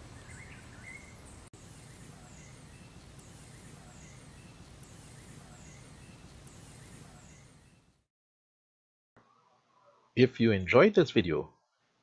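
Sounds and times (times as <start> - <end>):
steady outdoor hiss: 0.0 - 8.0.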